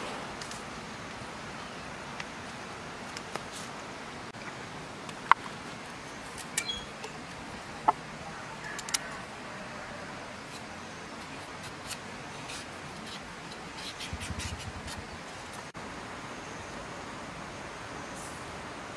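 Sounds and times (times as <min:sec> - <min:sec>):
steady hiss: 0:00.0 - 0:18.9
knife scraping carrot skin: 0:10.4 - 0:15.1.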